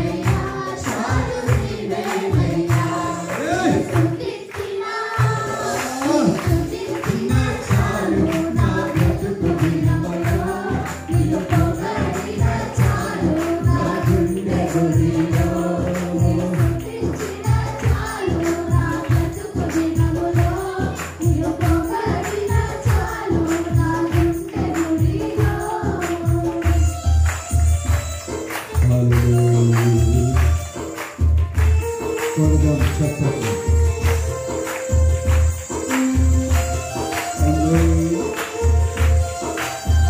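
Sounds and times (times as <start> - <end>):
group singing: 0.0 - 27.1
tambourine: 5.3 - 40.0.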